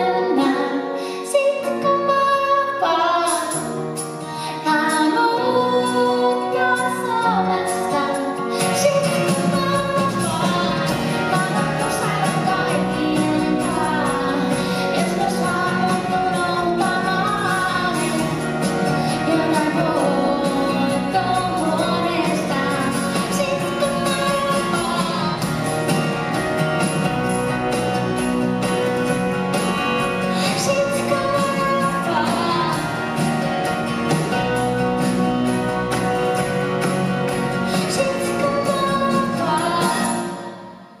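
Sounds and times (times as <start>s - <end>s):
woman singing: 0.0s - 25.7s, 30.3s - 33.3s, 37.6s - 40.8s
acoustic guitar: 0.0s - 41.0s
electric guitar: 0.0s - 41.0s.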